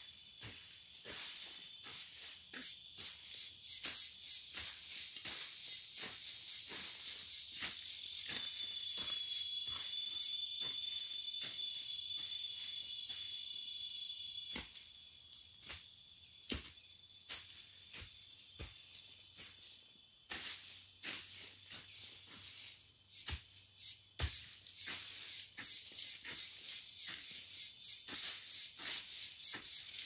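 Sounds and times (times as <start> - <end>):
insect buzzing: 0.0 - 18.6, 22.5 - 30.0
hoe scraping soil: 0.4 - 9.9, 24.2 - 27.5.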